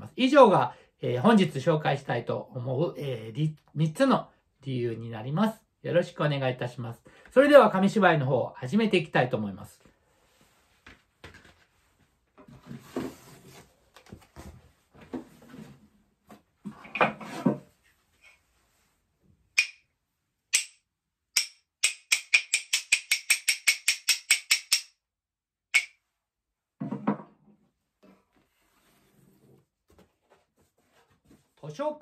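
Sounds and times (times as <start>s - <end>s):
wooden clappers clacking: 19.6s - 19.8s, 20.5s - 20.8s, 21.4s - 25.0s, 25.7s - 26.0s
rustling and knocking of wooden frame: 26.8s - 28.3s.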